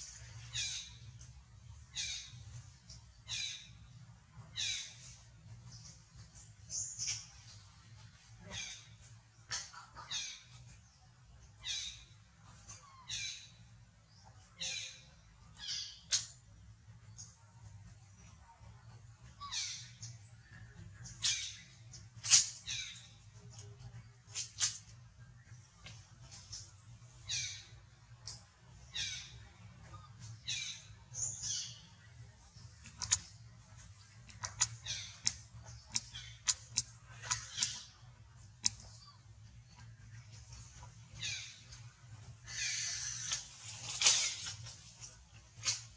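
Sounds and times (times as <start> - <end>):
sharp clicks: 32.8 - 33.4, 34.2 - 37.9, 38.6 - 39.0.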